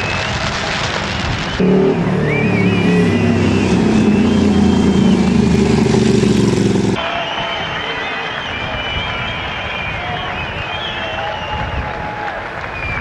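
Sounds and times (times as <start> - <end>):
rushing noise: 0.0 - 7.2
faint high whistling: 1.3 - 6.1, 7.0 - 11.9
racing motorcycle engine revving: 1.6 - 7.0.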